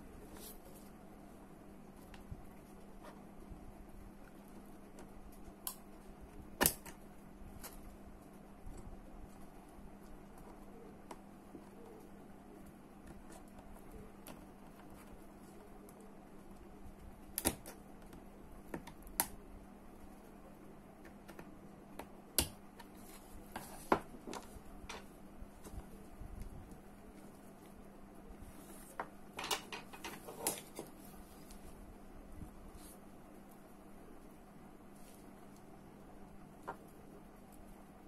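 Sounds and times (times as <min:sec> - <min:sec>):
low steady hum: 0:00.0 - 0:38.0.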